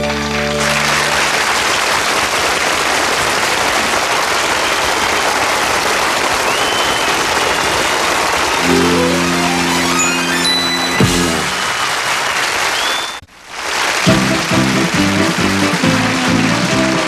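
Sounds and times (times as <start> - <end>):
audience applauding: 0.0 - 17.0
band holding final chord: 8.6 - 11.6.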